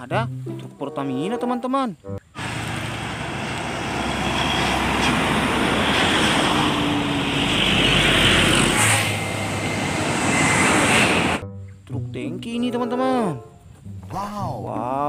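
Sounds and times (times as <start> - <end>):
trucks driving past: 2.2 - 11.4.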